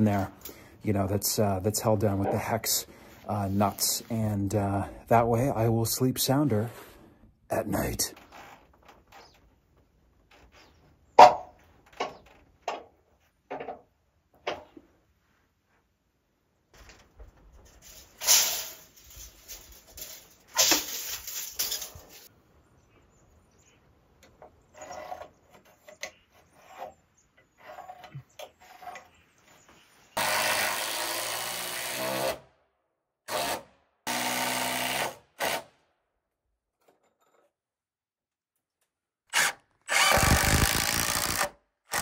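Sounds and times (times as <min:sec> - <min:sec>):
knocks and handling of wood and tools: 0:08.1 - 0:15.9, 0:16.6 - 0:22.3, 0:24.1 - 0:30.4, 0:36.6 - 0:39.0
cordless drill running into wood: 0:30.2 - 0:32.4, 0:39.3 - 0:42.0.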